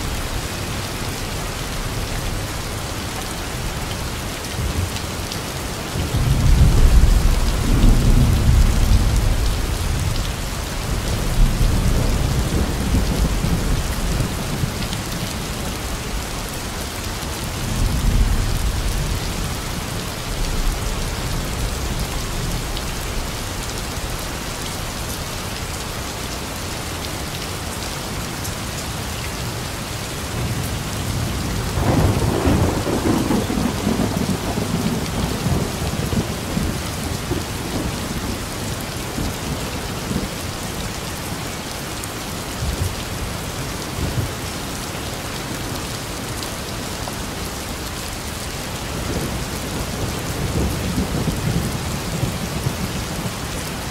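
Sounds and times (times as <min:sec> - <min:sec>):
heavy rain: 0:00.0 - 0:53.9
thunder rumbling: 0:31.6 - 0:37.9.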